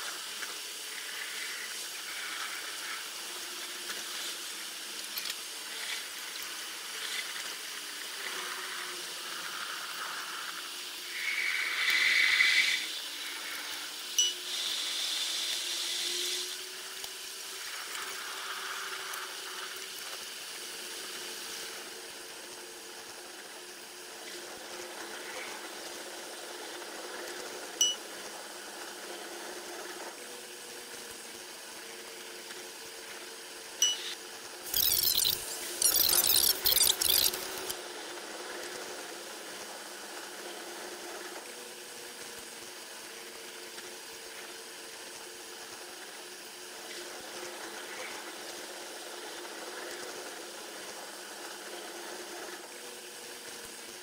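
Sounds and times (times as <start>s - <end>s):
sharp clicks: 34.7s - 37.7s.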